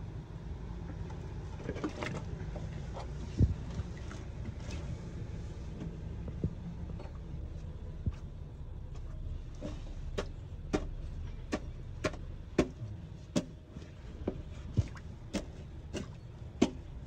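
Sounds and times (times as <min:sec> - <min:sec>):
steady low rumble: 0:00.0 - 0:17.0
rustling and knocking roots: 0:05.7 - 0:17.0.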